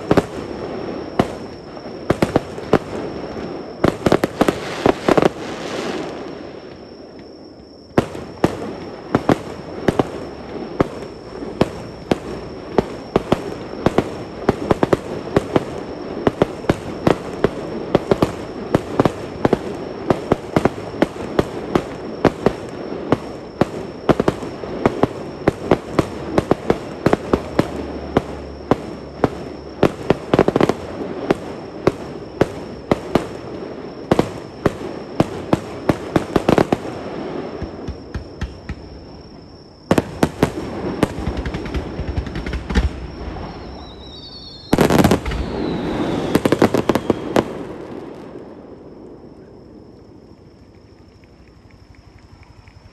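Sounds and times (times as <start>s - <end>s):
fireworks bangs and crackles: 0.0s - 50.4s.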